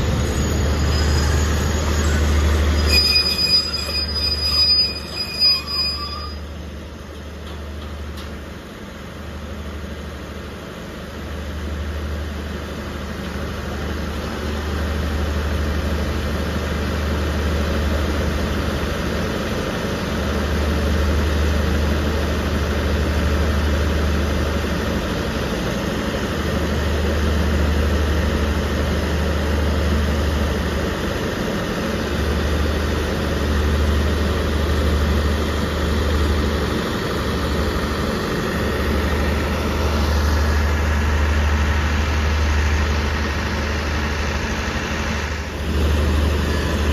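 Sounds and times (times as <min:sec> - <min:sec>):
wheel or brake squeal: 0:00.0 - 0:06.6
diesel train engine idling: 0:00.0 - 0:46.9.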